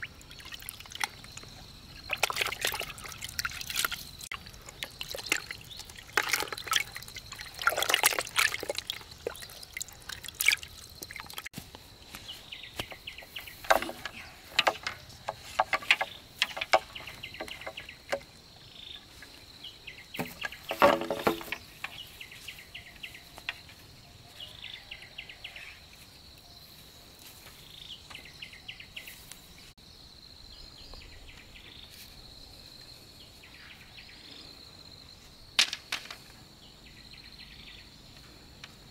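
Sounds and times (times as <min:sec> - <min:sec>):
water splashing and sloshing: 0:00.0 - 0:19.4, 0:20.1 - 0:22.2.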